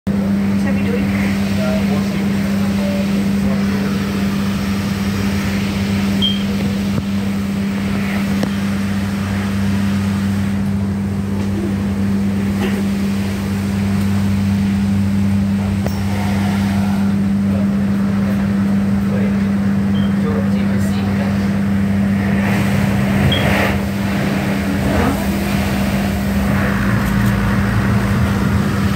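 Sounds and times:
train equipment hum: 0:00.1 - 0:28.9
water spraying on windows: 0:00.4 - 0:19.9, 0:20.6 - 0:28.9.

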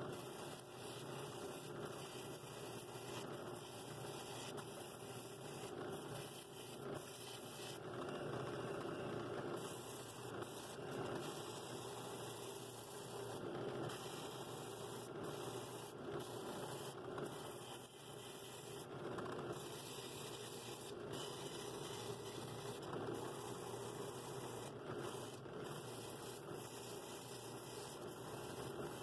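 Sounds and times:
drill press sanding wood: 0:19.6 - 0:29.0.

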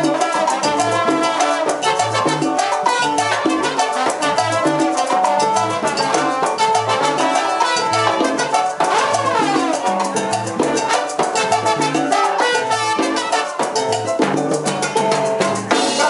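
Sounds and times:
trombones: 0:00.0 - 0:14.0
salsa band playing: 0:00.0 - 0:16.0.

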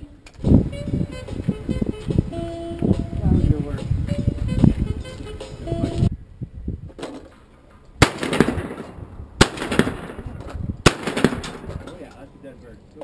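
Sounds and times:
shotgun shots with echo: 0:08.0 - 0:12.0.

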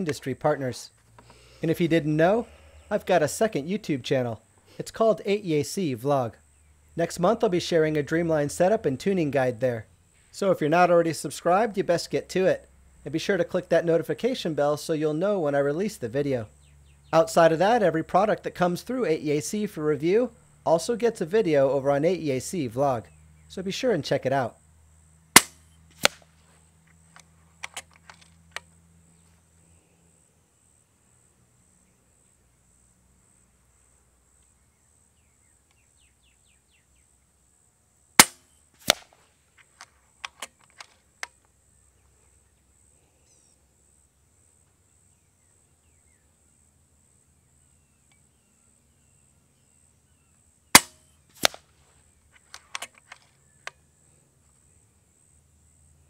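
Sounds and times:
air rifle shot: 0:25.4 - 0:26.2, 0:38.2 - 0:39.1, 0:50.8 - 0:51.6
rifle action clicks: 0:25.4 - 0:26.2, 0:27.2 - 0:28.7, 0:38.2 - 0:39.2, 0:39.8 - 0:41.4, 0:50.8 - 0:51.6, 0:52.4 - 0:53.8
sharp crack: 0:25.4 - 0:26.3, 0:38.2 - 0:39.2, 0:50.7 - 0:51.7.

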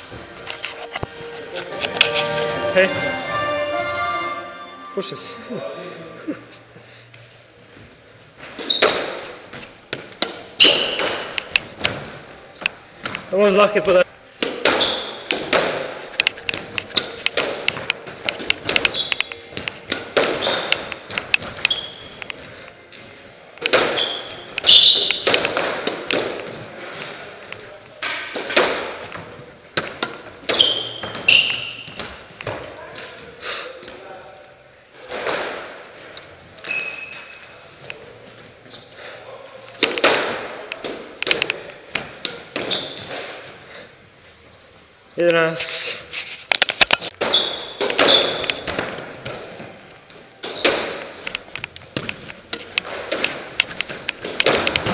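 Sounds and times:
shoes squeaking on wooden floor: 0:00.0 - 0:04.7, 0:07.2 - 0:12.2, 0:14.6 - 0:27.3, 0:30.4 - 0:32.6, 0:35.4 - 0:39.0, 0:42.5 - 0:43.4, 0:47.2 - 0:54.9
squash ball cracks off walls: 0:39.8 - 0:42.8, 0:47.1 - 0:49.5, 0:52.0 - 0:54.9
squash ball hit by rackets: 0:52.0 - 0:54.9.

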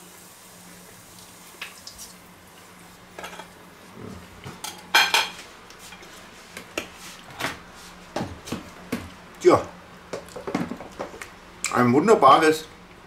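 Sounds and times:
cutlery clinking on plate: 0:04.6 - 0:05.4.

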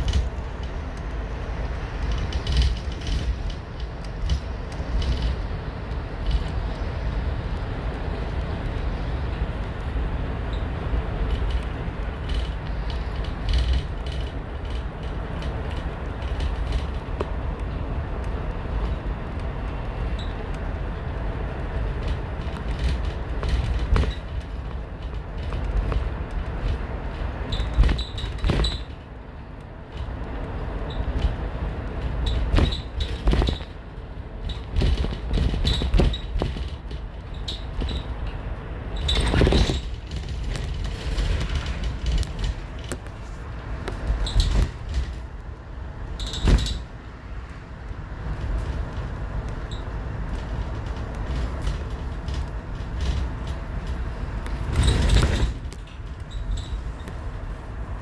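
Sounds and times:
interior rattles and creaks: 0:00.0 - 0:58.0
vehicle engine and tyre rumble: 0:00.0 - 0:58.0
short squeaks: 0:20.1 - 0:20.4, 0:27.5 - 0:29.0, 0:32.2 - 0:33.8, 0:37.3 - 0:38.3, 0:38.9 - 0:40.2, 0:44.0 - 0:45.2, 0:46.1 - 0:46.9, 0:49.6 - 0:50.0, 0:54.7 - 0:57.2.

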